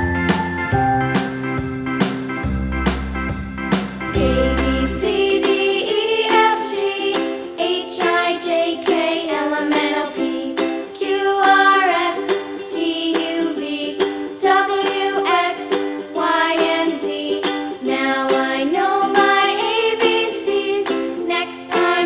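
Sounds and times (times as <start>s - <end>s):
melody over plucked strings: 0.0s - 9.6s.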